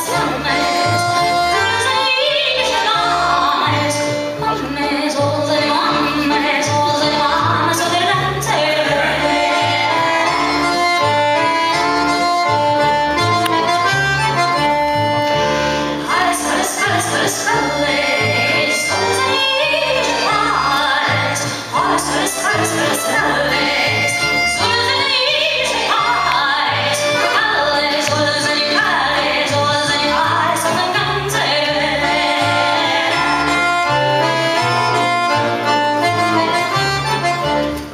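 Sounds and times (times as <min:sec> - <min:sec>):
woman singing: 0:00.0 - 0:10.9, 0:16.0 - 0:33.9
accordion melody: 0:00.0 - 0:37.9
double bass line: 0:00.0 - 0:37.9.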